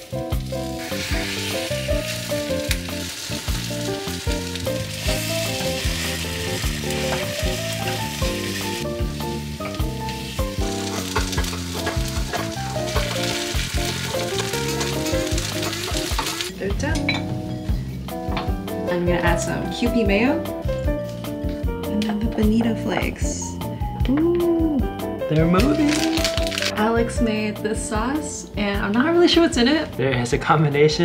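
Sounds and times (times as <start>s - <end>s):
batter sizzling in a pan: 0.0s - 16.5s
background music: 0.0s - 31.0s.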